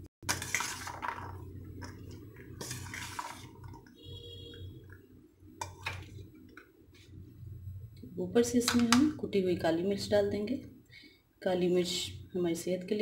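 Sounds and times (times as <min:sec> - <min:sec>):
spoon stirring wet food in bowl: 0:00.2 - 0:07.2.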